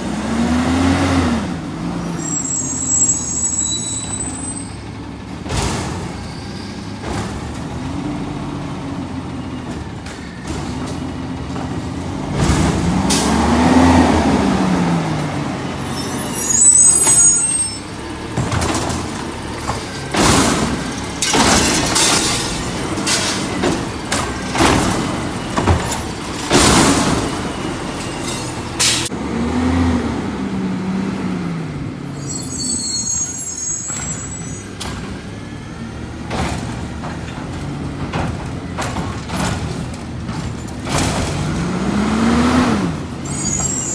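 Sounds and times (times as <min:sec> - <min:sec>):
garbage truck engine revving: 0:00.0 - 0:03.5, 0:04.8 - 0:32.3, 0:34.8 - 0:43.9
cart clanking and banging: 0:01.8 - 0:29.2, 0:31.9 - 0:43.9
high-pitched squeals: 0:02.0 - 0:04.9, 0:15.7 - 0:18.0, 0:32.0 - 0:34.8, 0:43.2 - 0:43.9.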